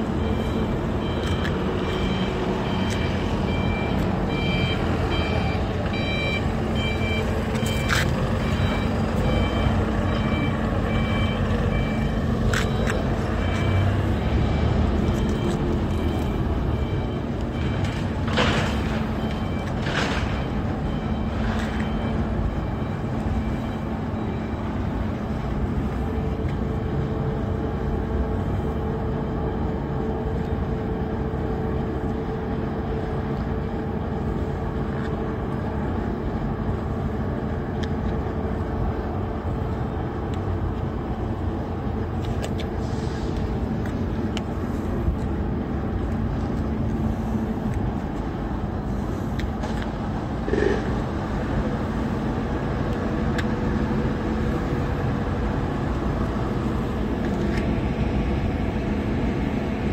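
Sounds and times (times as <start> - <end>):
rush of air from fans: 42.6 - 45.6.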